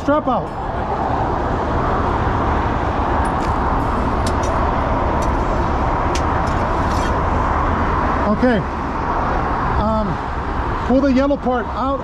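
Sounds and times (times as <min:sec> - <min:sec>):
large vehicle engine running: 0:00.0 - 0:12.0
roadway noise: 0:00.0 - 0:12.0.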